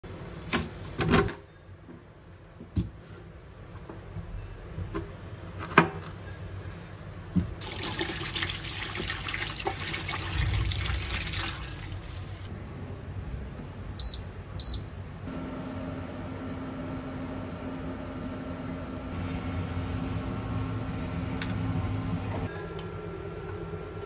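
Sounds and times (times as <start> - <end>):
kitchen tap running: 7.6 - 12.5.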